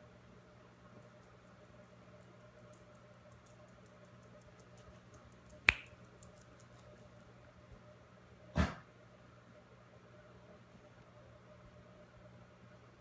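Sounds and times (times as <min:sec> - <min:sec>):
dog claws ticking on tile: 0:02.2 - 0:07.0.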